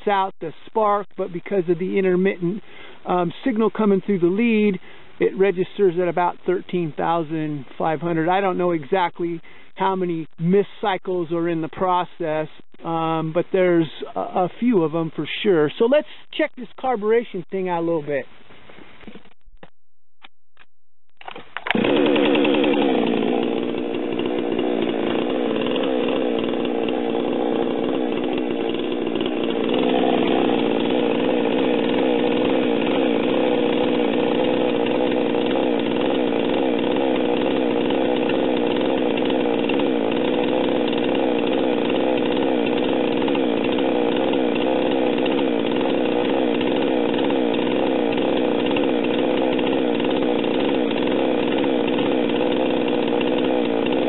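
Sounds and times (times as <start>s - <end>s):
chainsaw engine starting and idling: 0.0s - 16.9s, 21.2s - 54.0s.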